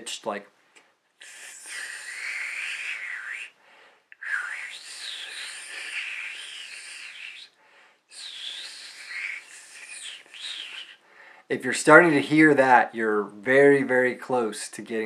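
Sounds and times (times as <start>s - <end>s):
breathy hiss of blown air: 1.2s - 11.5s.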